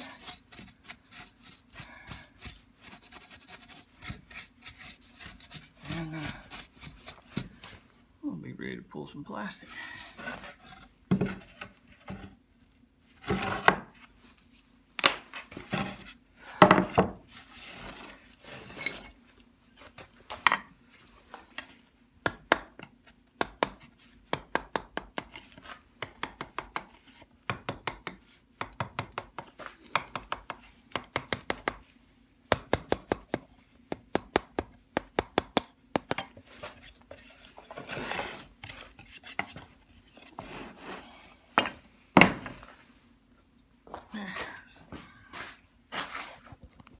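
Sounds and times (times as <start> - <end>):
sanding strokes: 0.0 - 7.2
chisel scraping wood: 2.4 - 7.5, 36.4 - 41.3.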